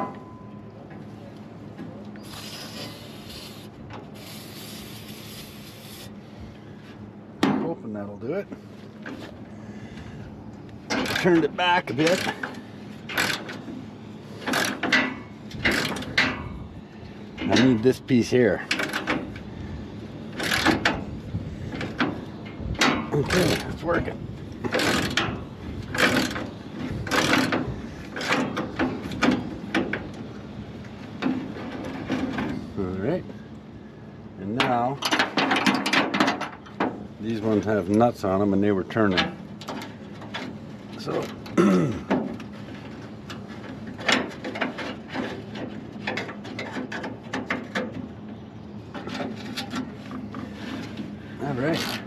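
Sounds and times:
ratchet wrench clicking: 13.1 - 13.5, 20.4 - 20.8, 24.7 - 25.2, 26.0 - 26.4.

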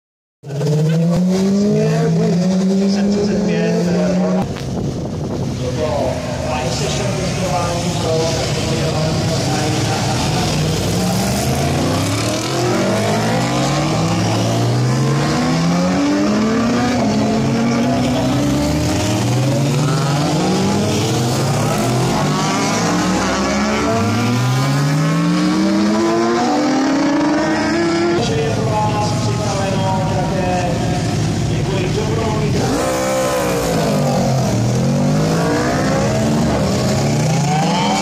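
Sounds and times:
racing motorcycles accelerating: 0.4 - 38.0.

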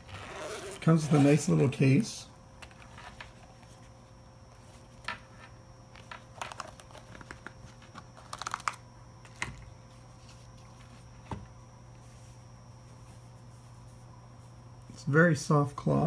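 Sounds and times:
plastic wrapper crinkling: 6.4 - 8.8.

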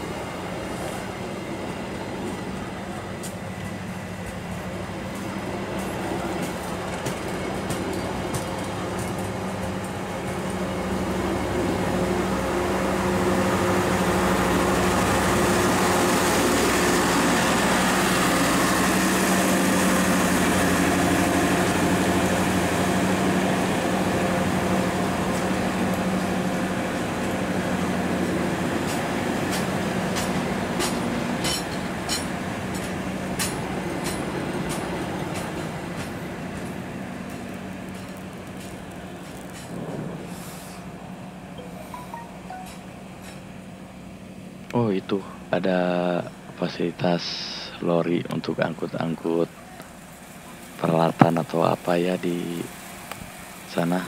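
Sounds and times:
train wheels rumbling on rails: 0.0 - 41.5
wheels clicking over rail joints: 5.2 - 10.6, 28.8 - 40.2.

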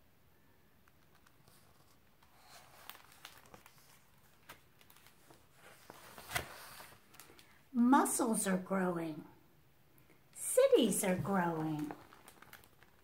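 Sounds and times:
book handling rustles and clicks: 0.8 - 7.6, 10.8 - 13.0
page turning: 0.8 - 7.6, 11.0 - 13.0.

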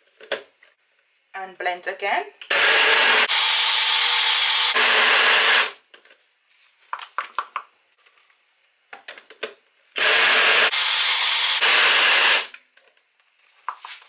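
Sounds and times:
blender motor whirring: 2.5 - 5.8, 10.0 - 12.5.

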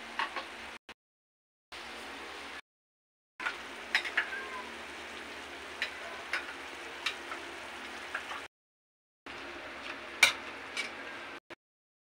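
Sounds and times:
meat sizzling in oil: 3.4 - 8.5.

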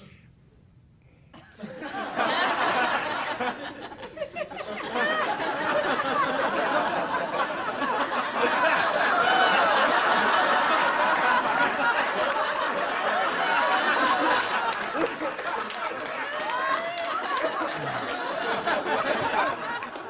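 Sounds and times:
audience laughing: 1.6 - 20.0.

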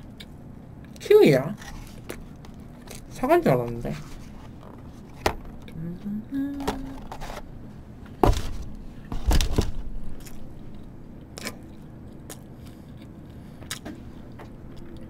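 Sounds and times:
soft chewing: 10.2 - 15.0.

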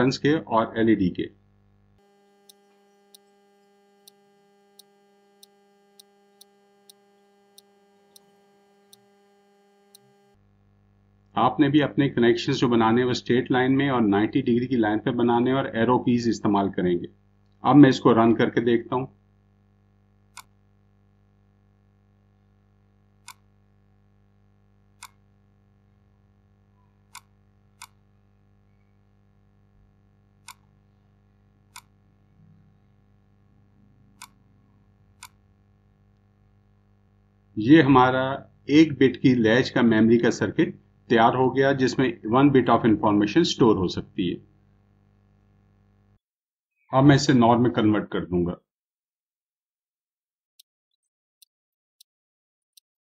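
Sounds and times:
faint electrical hum: 0.0 - 46.2
soft computer clicks: 2.0 - 10.4, 20.3 - 20.6, 23.2 - 23.5, 25.0 - 25.2, 26.8 - 28.0, 30.4 - 31.0, 31.7 - 32.0, 34.1 - 34.5, 35.2 - 35.4.

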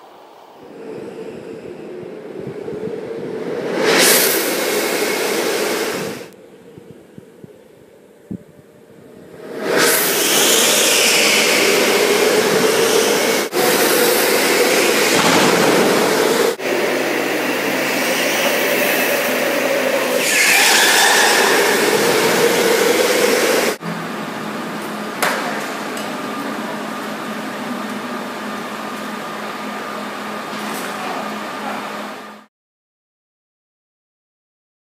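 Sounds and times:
wind and tyre noise: 0.0 - 13.6.

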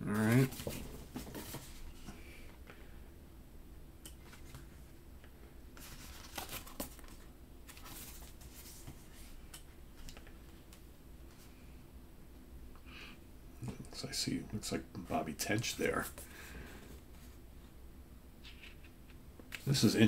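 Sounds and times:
paper pages rustling: 5.8 - 9.3.

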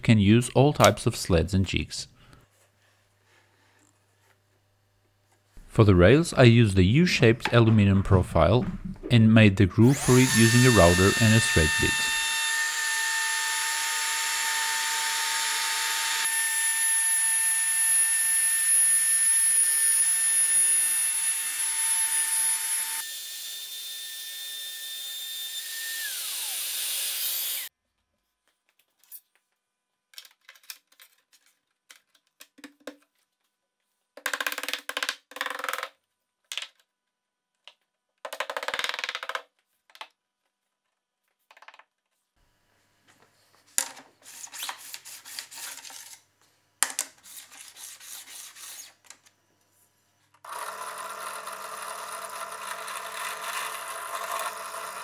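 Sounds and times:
router whining while cutting wood: 9.8 - 27.7, 50.4 - 55.0.

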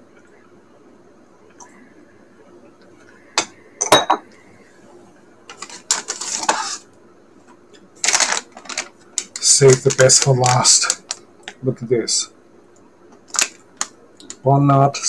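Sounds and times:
plastic snack bag crinkling: 5.5 - 6.8, 8.0 - 11.6, 13.2 - 14.4.

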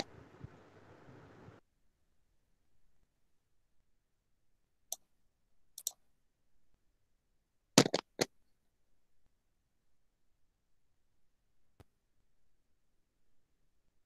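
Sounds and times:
computer mouse clicking: 5.8 - 6.0.

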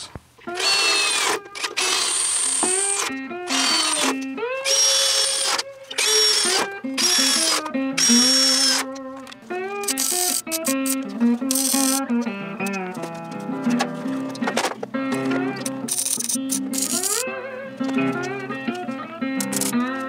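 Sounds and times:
blues guitar music: 0.4 - 20.0
cordless drill whining: 0.5 - 8.9.

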